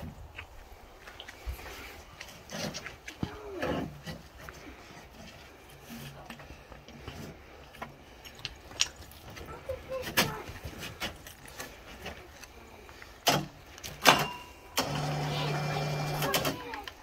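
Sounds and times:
motor hum: 14.7 - 16.6.

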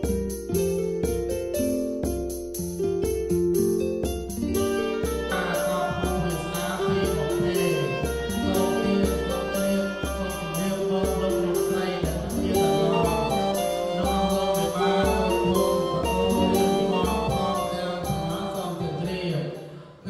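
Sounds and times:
sustained melody: 0.0 - 19.5
low bass note: 6.0 - 19.1.

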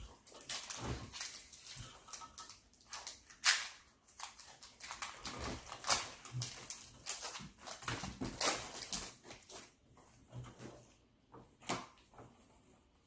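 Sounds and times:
foil wrappers crinkling and tearing: 0.0 - 9.8.

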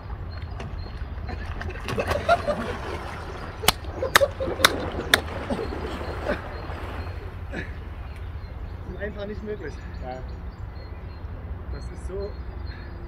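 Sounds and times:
water splashing: 1.2 - 8.7
sharp slaps of water: 1.5 - 7.1.

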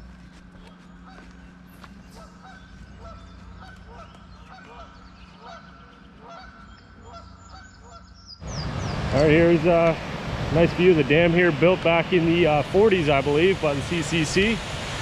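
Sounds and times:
faint high bird chirps: 0.5 - 9.0
geese honking: 0.6 - 9.8.

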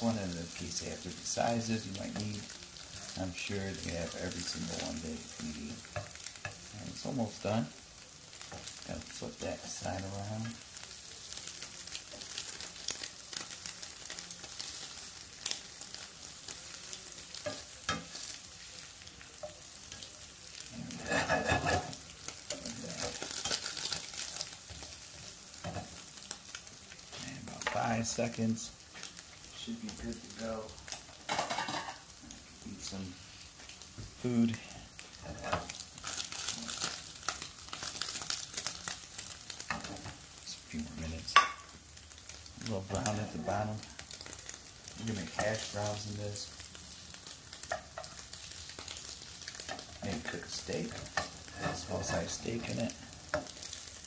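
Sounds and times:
eggs sizzling in a frying pan: 0.0 - 54.0
spatula scraping a pan: 19.3 - 27.9, 35.0 - 40.2, 47.6 - 53.8
pan clacking on burner grate: 21.0 - 24.0, 31.2 - 32.0, 41.3 - 41.6.

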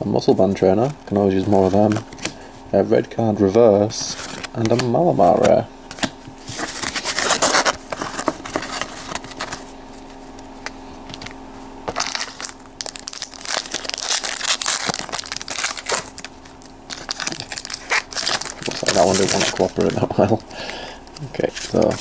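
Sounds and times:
foil wrapper crinkling and tearing: 6.5 - 9.6, 11.9 - 22.0.

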